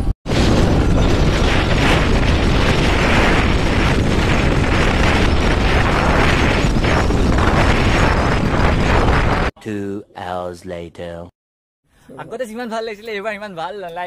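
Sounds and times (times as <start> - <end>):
wind buffeting microphone: 0.3 - 9.5.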